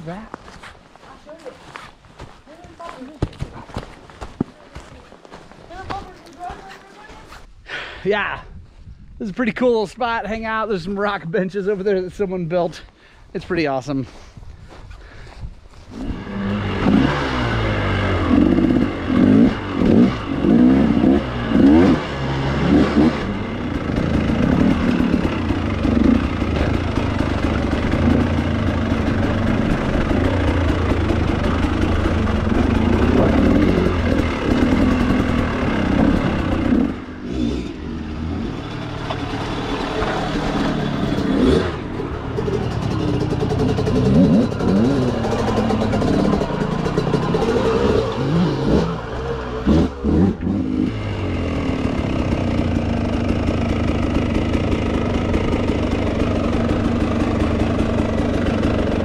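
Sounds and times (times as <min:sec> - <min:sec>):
dirt bike engines revving: 0:15.9 - 0:59.0.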